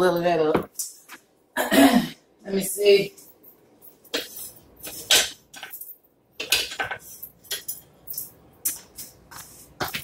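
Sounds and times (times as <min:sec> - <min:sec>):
utensils and dishes clinking: 0:03.3 - 0:09.2.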